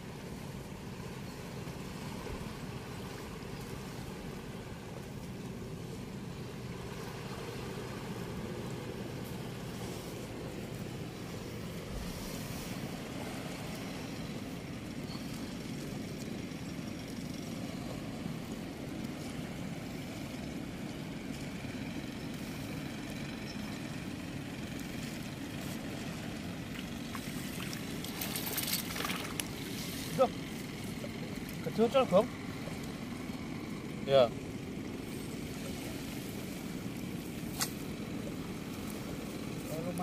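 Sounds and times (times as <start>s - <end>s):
water rushing through sluice gate: 24.0s - 32.3s
rustles and clicks: 26.7s - 30.3s.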